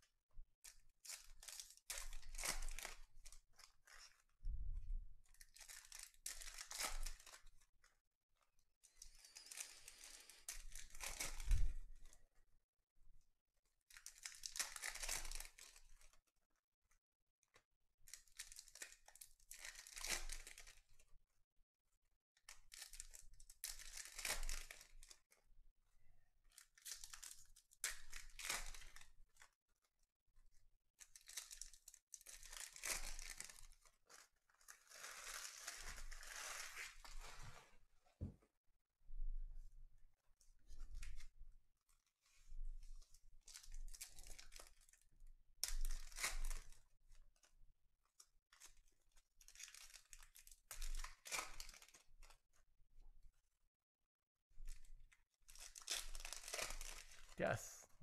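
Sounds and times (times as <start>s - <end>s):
foil wrappers tearing and crinkling: 1.0s - 4.3s, 5.4s - 7.6s, 9.1s - 11.8s, 13.9s - 16.1s, 18.1s - 20.8s, 22.5s - 25.2s, 26.5s - 29.4s, 31.0s - 37.4s, 43.5s - 45.0s, 45.6s - 46.8s, 49.4s - 52.1s, 55.5s - 57.4s.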